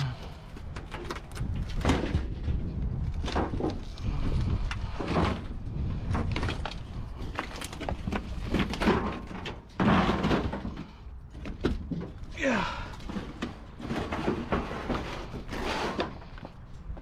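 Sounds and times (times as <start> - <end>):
metal appliance scraping on trailer: 13.6 - 16.4.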